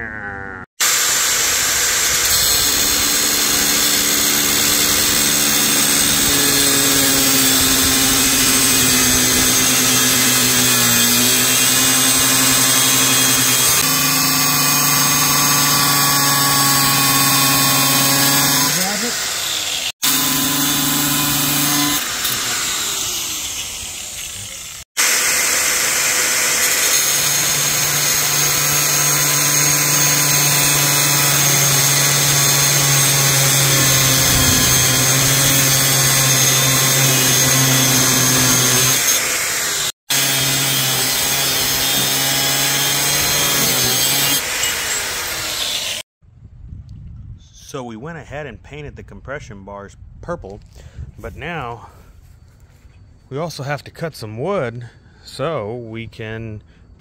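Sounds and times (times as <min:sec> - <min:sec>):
angle grinder cutting steel rod: 0:00.8 - 0:46.0.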